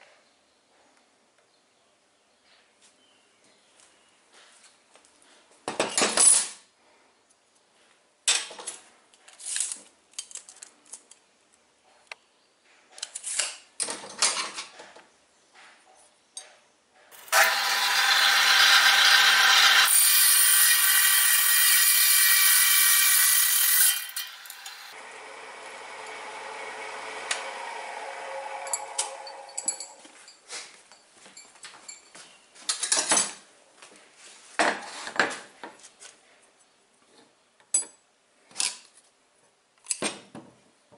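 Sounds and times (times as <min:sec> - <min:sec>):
saw cutting steel with hiss: 0:17.2 - 0:25.0
chop saw motor running: 0:17.2 - 0:29.9
steel rod clinking on metal: 0:28.7 - 0:30.5.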